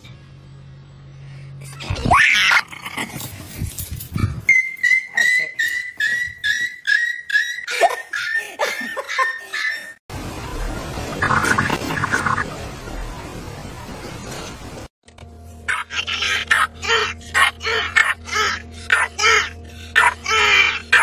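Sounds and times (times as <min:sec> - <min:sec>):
small dog yipping: 0:04.5 - 0:08.4.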